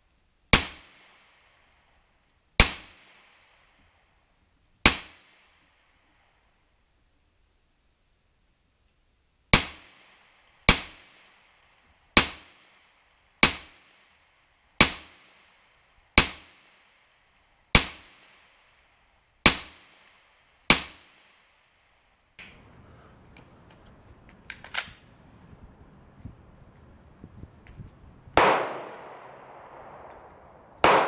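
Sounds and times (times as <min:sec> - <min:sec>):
pistol shots with echo: 0:28.3 - 0:31.0.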